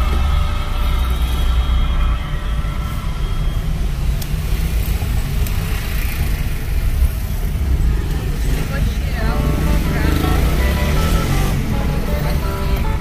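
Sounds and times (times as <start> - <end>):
car engine: 0.0 - 13.0
road traffic rumble: 0.0 - 13.0.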